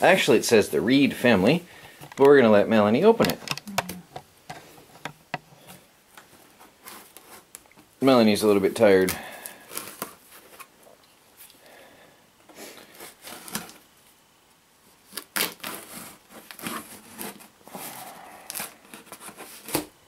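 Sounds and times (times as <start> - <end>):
packing tape being slit and ripped: 12.9 - 13.8, 15.0 - 19.9.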